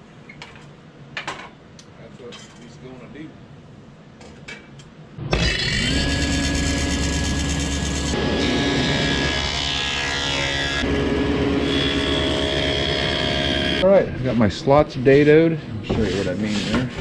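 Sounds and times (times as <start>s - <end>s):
table saw cutting wood: 5.2s - 13.8s.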